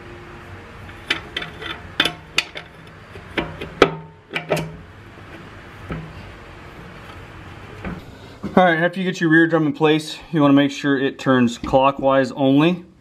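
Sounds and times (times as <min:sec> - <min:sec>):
metal knocking and clinking: 0:01.0 - 0:04.8.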